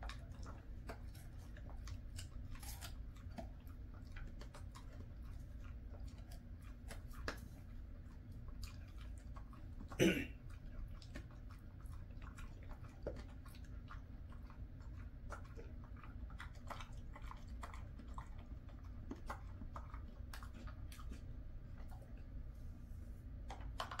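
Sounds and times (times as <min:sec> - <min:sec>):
dog chewing with crunches: 0:00.0 - 0:24.0.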